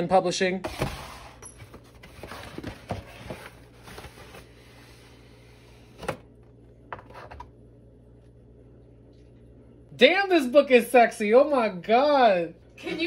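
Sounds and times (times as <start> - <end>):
cardboard rustling and scraping: 0.7 - 6.2.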